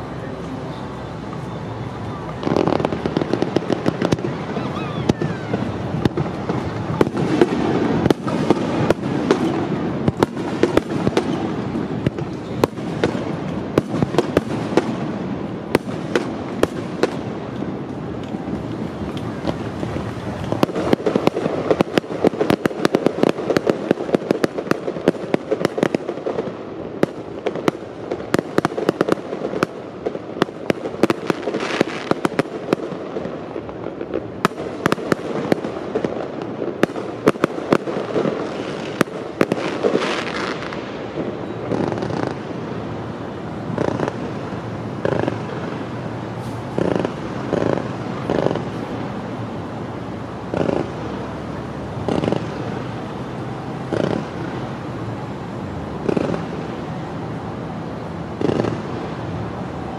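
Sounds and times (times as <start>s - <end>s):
firework shell bursts and crackling: 2.2s - 55.2s, 55.9s - 56.9s, 58.2s - 59.7s.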